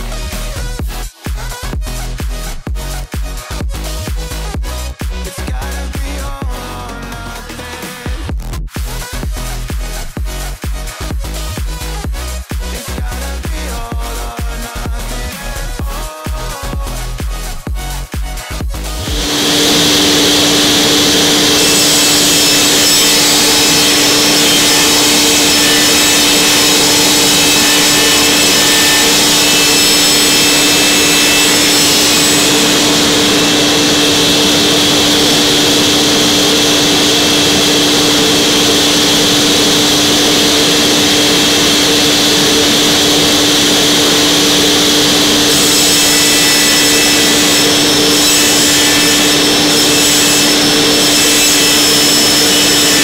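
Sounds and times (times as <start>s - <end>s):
table saw cutting wood: 18.8s - 53.0s.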